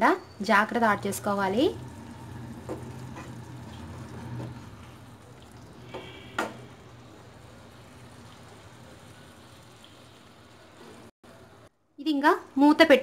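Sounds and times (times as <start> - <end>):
gravy sizzling: 0.4 - 11.7.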